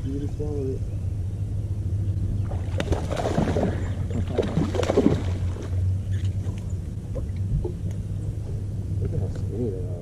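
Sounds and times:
steady low hum: 0.0s - 10.0s
fish splashing at water surface: 2.6s - 5.8s.

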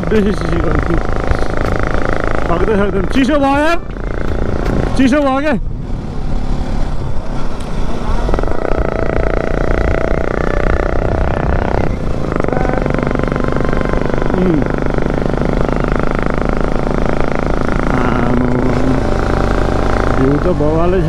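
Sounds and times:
motorcycle engine under load: 0.0s - 21.0s
wind on microphone: 5.6s - 20.2s.

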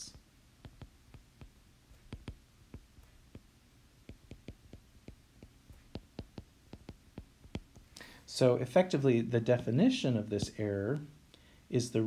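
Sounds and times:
stylus tapping on glass screen: 0.6s - 3.5s, 4.1s - 8.0s.

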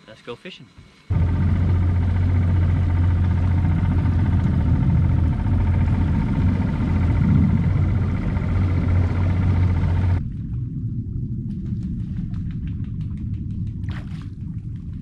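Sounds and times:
boat motor humming: 0.6s - 10.2s.

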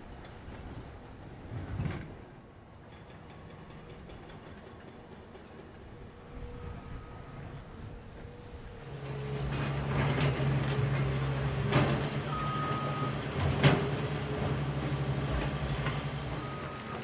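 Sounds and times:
heavy machinery diesel rumble: 6.1s - 17.0s
machinery clanking: 9.0s - 17.0s.

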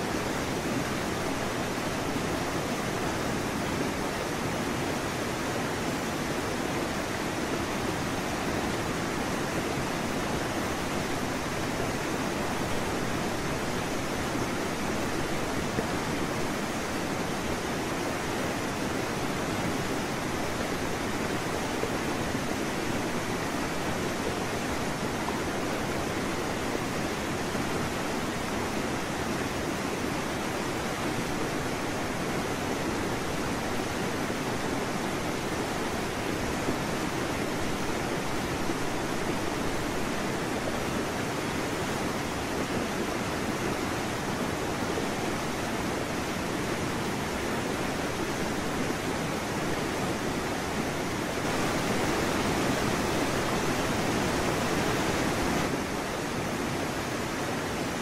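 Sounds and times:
steady rushing noise: 31.4s - 58.0s.

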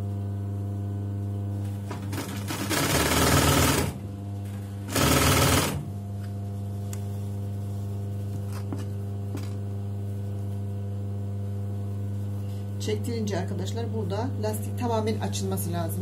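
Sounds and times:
steady low hum: 0.0s - 16.0s
sewing machine stitching: 2.1s - 4.0s, 4.9s - 5.8s.

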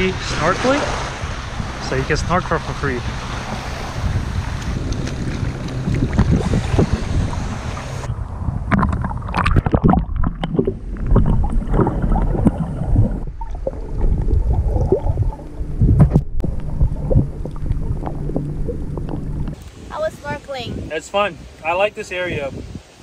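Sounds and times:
underwater rumble of moving water: 0.0s - 19.6s
bubbly clicks and knocks: 8.6s - 19.6s.

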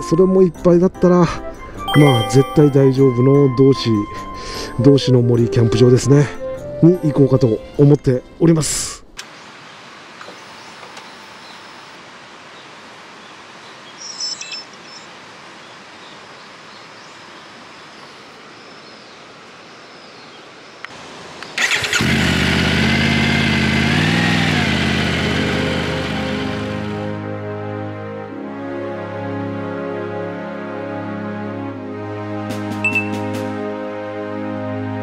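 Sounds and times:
high beeping: 1.9s - 3.6s
steady outdoor hiss: 7.8s - 29.1s
motorcycle engine starting and revving: 21.6s - 27.2s.

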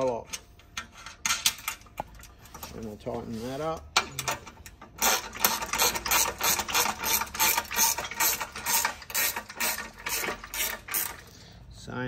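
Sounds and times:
ratcheting spanner clicking: 3.9s - 11.3s.

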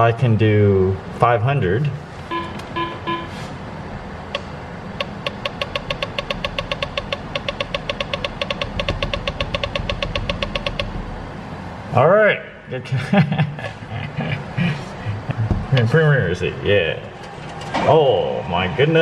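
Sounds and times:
steady low hum: 0.0s - 19.0s
touchscreen key press beeps: 2.3s - 3.4s, 4.4s - 10.9s.

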